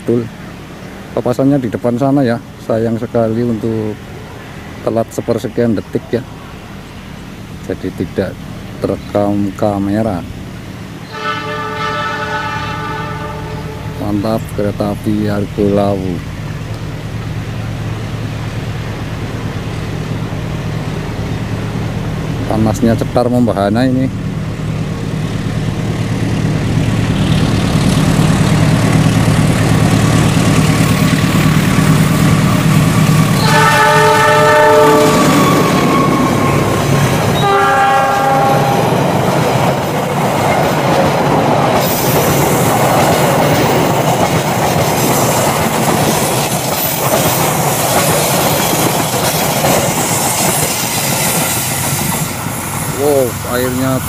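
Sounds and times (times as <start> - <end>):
diesel locomotive engine: 0.0 - 54.0
train horn blasts: 11.1 - 14.1, 33.4 - 39.0
wheels clattering over track: 38.5 - 54.0.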